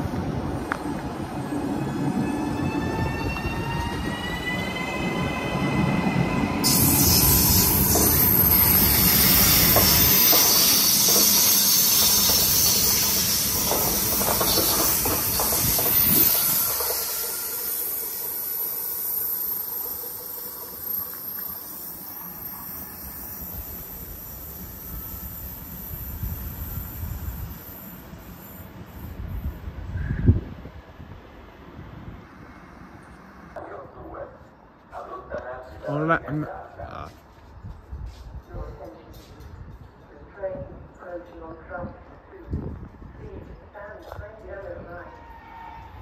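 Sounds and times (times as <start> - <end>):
wheel-on-rail noise: 6.6 - 18.2
loud hiss: 6.6 - 29.6.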